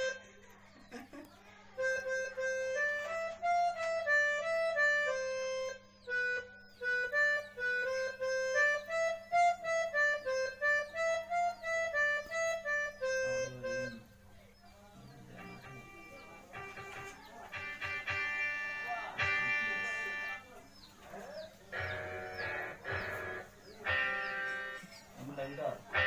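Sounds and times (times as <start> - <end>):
electronic keyboard melody: 0.0 - 0.4, 1.8 - 14.2, 15.1 - 26.0.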